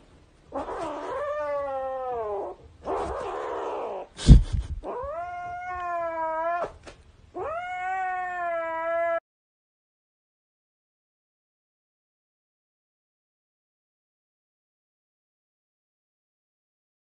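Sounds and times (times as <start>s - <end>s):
kitten meowing: 0.6s - 4.1s, 4.8s - 6.8s, 7.4s - 9.2s.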